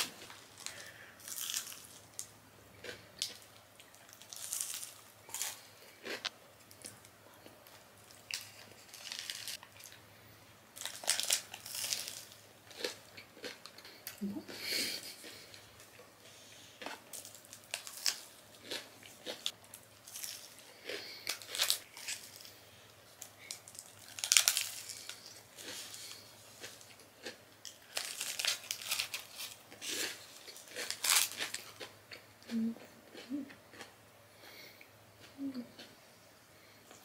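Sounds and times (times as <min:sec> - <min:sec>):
paper wrapper crinkling: 0:08.1 - 0:09.6, 0:23.5 - 0:26.2, 0:27.9 - 0:29.6.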